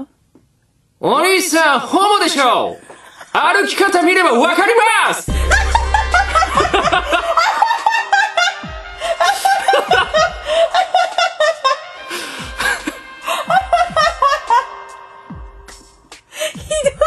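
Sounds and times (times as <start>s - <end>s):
background music: 5.2s - 17.0s
people laughing: 5.3s - 14.7s.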